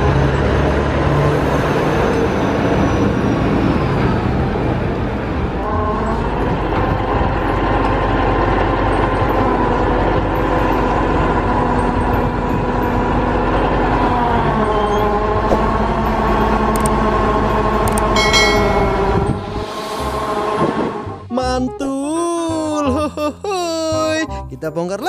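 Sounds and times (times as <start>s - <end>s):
crane diesel engine running: 0.0s - 20.4s
short bright ringing: 18.2s - 20.1s.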